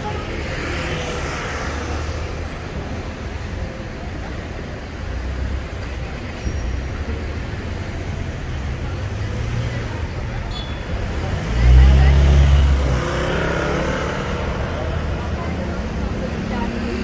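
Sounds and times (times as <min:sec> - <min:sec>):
cars driving past: 0:06.8 - 0:17.0.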